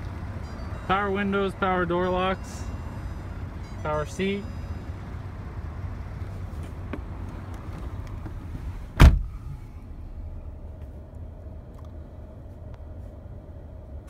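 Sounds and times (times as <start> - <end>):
low rumble in car cabin: 0.0 - 14.0
car door shutting: 6.6 - 9.7.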